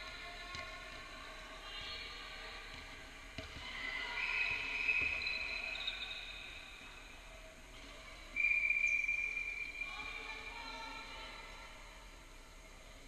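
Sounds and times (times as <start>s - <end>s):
ball bouncing: 0.4s - 1.0s, 2.7s - 3.8s
shoes squeaking on court: 4.8s - 6.4s
whistle blast: 8.4s - 10.1s.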